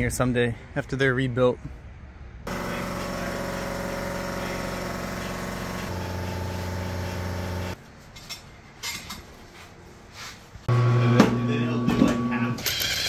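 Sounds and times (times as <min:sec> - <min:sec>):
machine humming: 0:02.5 - 0:07.8, 0:10.7 - 0:12.6.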